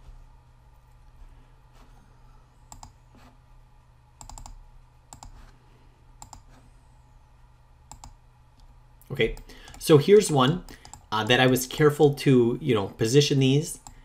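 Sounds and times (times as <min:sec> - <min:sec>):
faint low hum: 0:00.0 - 0:14.0
computer mouse clicking: 0:02.7 - 0:03.0, 0:04.2 - 0:05.5, 0:06.2 - 0:06.6, 0:07.9 - 0:08.7, 0:09.4 - 0:09.8, 0:10.6 - 0:11.1.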